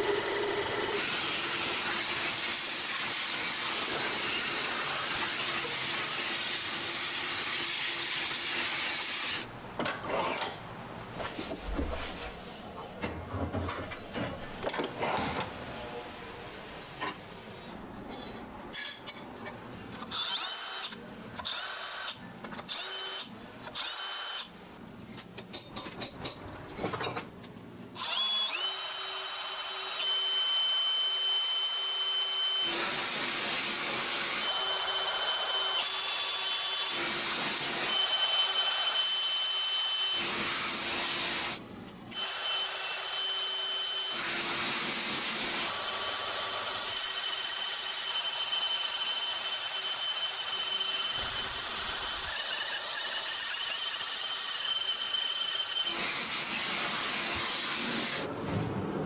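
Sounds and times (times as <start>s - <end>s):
power drill boring into steel: 28.0s - 33.2s, 34.2s - 41.5s, 42.1s - 56.6s.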